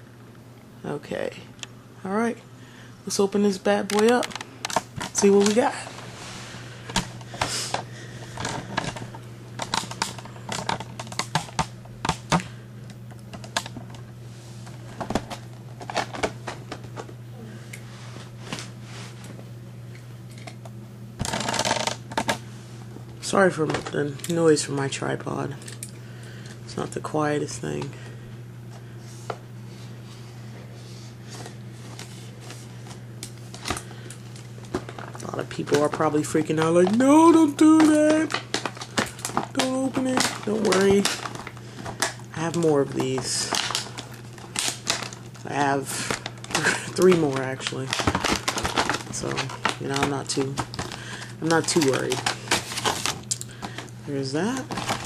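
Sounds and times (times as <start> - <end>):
steady low hum: 0.0 - 55.0
plastic blister pack handled: 6.8 - 14.0, 31.4 - 55.0.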